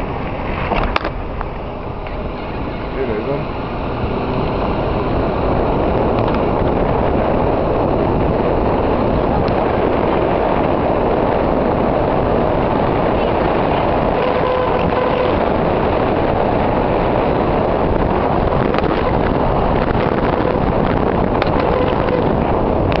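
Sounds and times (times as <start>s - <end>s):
car interior driving noise: 0.0s - 23.0s.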